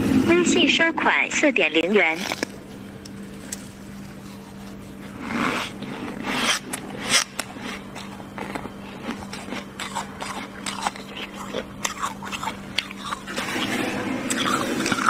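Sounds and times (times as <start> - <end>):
frost cracking and crunching: 1.8 - 15.0
fingers scraping frost: 3.4 - 11.5.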